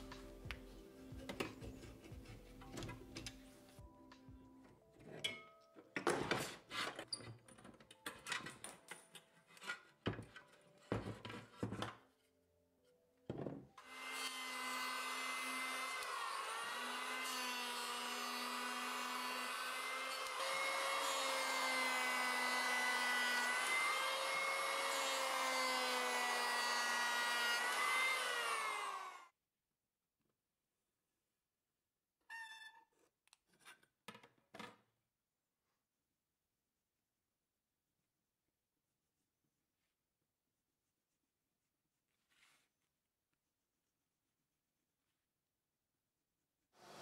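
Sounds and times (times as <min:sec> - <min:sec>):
electric hand planer whining: 0:13.8 - 0:29.3.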